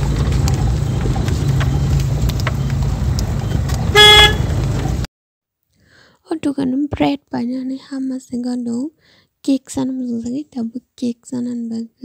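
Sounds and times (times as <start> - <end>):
car engine rumble inside cabin: 0.0 - 5.0.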